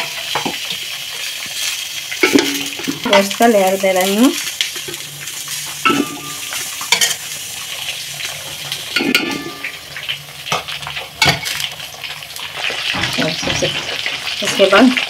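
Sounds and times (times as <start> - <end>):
hot water splashing and pouring: 0.0 - 15.0
utensils knocking on metal pot: 2.2 - 3.5, 5.8 - 7.2, 8.9 - 9.8, 12.8 - 14.8.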